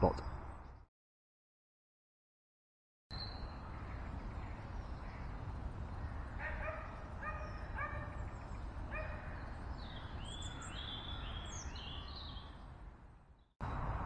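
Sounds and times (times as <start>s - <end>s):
dog barking: 6.4s - 8.2s, 8.9s - 9.3s
high bird chirps: 7.4s - 12.6s.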